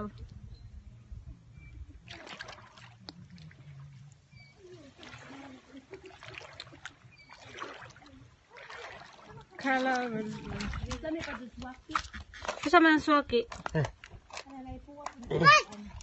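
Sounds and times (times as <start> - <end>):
shallow seawater splashing: 2.0 - 13.2.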